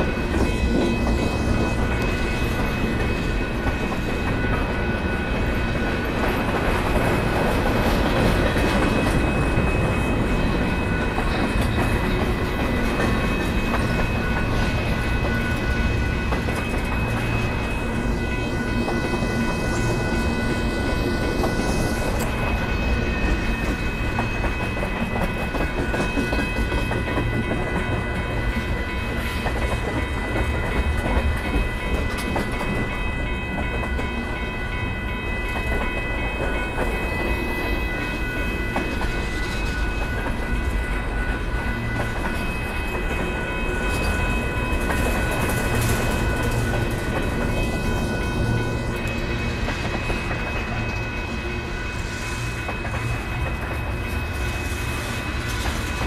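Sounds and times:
freight train wheels rumbling: 0:00.0 - 0:56.0
high-pitched ringing tone: 0:08.4 - 0:56.0.

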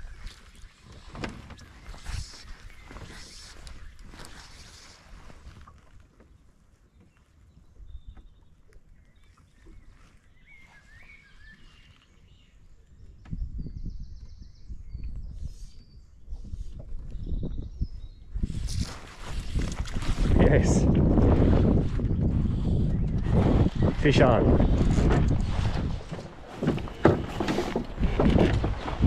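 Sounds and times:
short bird chirps: 0:09.1 - 0:12.2
wind buffeting microphone: 0:12.3 - 0:29.0.

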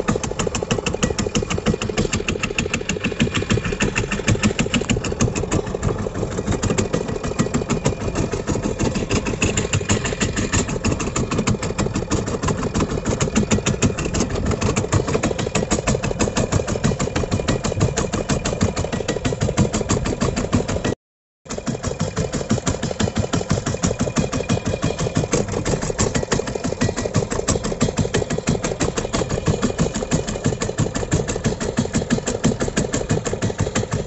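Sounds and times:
boat engine chugging: 0:00.0 - 0:34.0.

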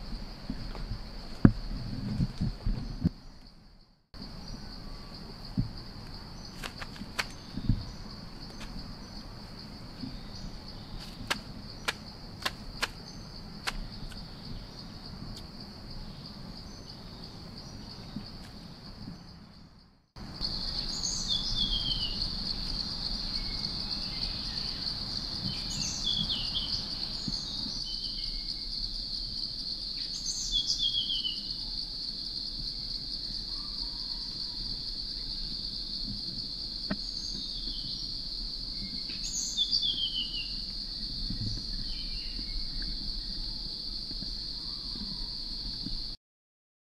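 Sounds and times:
birds chirping: 0:04.2 - 0:28.7.

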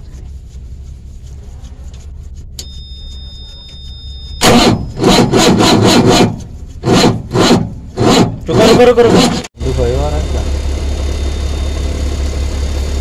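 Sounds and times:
low steady hum: 0:00.0 - 0:05.0
two-tone beep: 0:02.6 - 0:05.0
engine cranking rasping pulses: 0:04.4 - 0:09.5.

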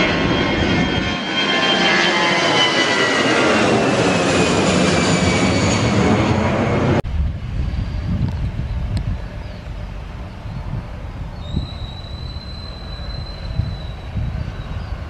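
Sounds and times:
jet airliner roar passing overhead: 0:00.0 - 0:15.0
low rumble: 0:03.9 - 0:15.0.

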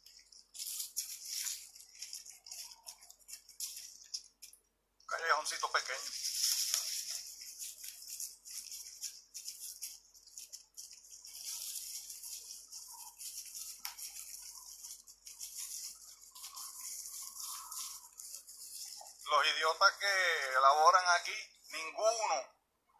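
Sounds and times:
footsteps on leafy dirt path: 0:05.8 - 0:20.4.

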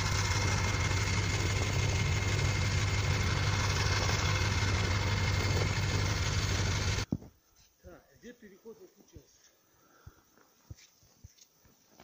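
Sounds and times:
diesel engine idling: 0:00.0 - 0:07.1.

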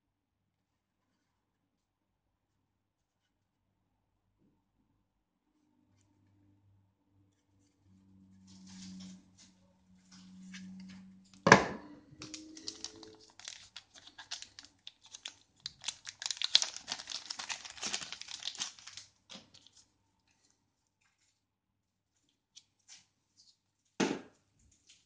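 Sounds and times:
plastic wrapping crinkling: 0:12.1 - 0:20.5.

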